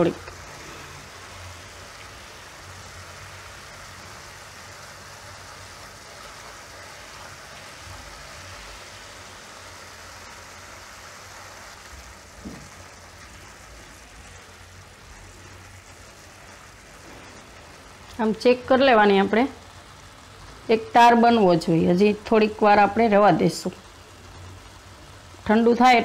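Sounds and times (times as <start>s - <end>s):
syrup bubbling in a pan: 0.0s - 26.0s
soft knock: 12.4s - 12.7s.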